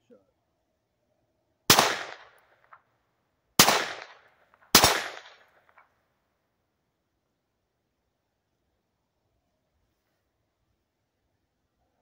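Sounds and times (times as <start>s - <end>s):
pistol gunshots: 1.7s - 2.8s, 3.6s - 5.8s.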